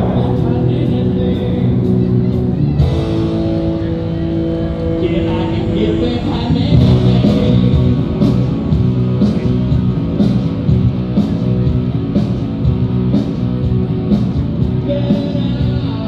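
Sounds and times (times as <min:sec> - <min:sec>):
rock guitar: 0:00.0 - 0:16.0
steady drum beat: 0:05.2 - 0:16.0.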